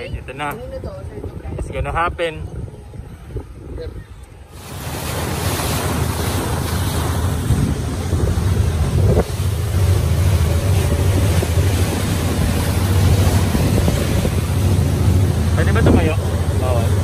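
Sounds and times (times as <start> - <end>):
water rushing off hull: 0.0 - 17.0
wind buffeting microphone: 0.0 - 17.0
motorboat engine drone: 4.1 - 17.0.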